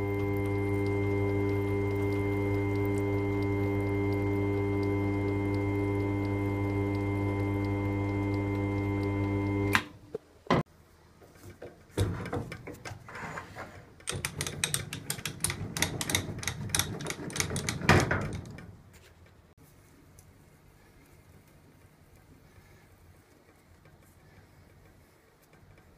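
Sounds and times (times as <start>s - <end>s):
lathe motor hum: 0.0s - 9.8s
metal clicking and rattling: 14.0s - 19.4s.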